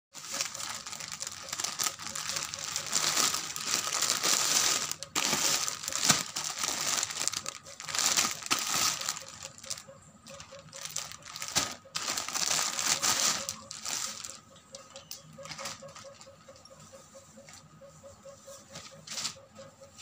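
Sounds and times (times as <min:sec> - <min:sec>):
plastic packaging crinkling: 0:00.2 - 0:14.5.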